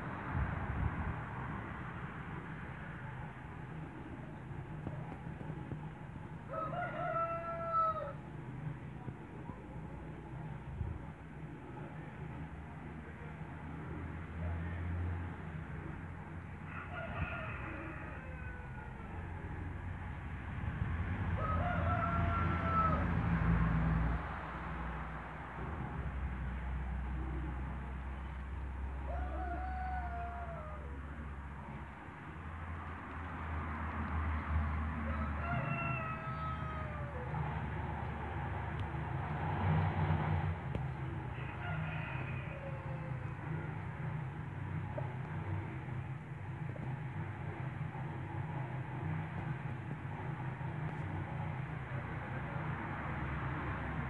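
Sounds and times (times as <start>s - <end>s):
steady low rumble: 0.0s - 6.5s, 8.1s - 14.6s, 42.2s - 54.0s
rooster crowing: 6.5s - 8.2s, 16.6s - 19.3s, 21.4s - 23.3s, 29.0s - 31.4s, 35.0s - 37.6s, 41.0s - 43.8s.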